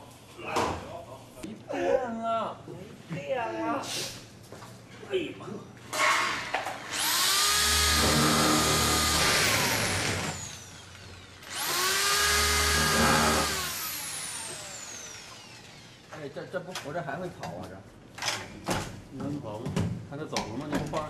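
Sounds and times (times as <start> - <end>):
electric drill whining: 6.8 - 16.2.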